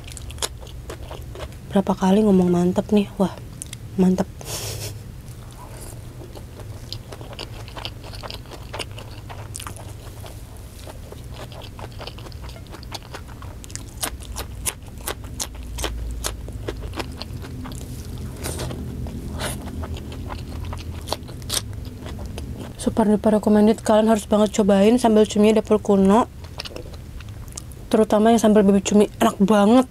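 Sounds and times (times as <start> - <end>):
crisp chewing crunches: 0.0 - 1.7, 5.3 - 22.8, 26.4 - 27.8
low steady hum: 0.0 - 29.9.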